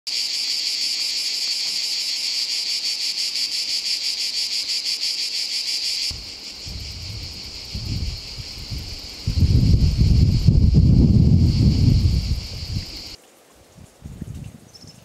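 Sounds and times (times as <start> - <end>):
cicadas buzzing: 0.1 - 13.2
wind rumble: 6.1 - 15.0.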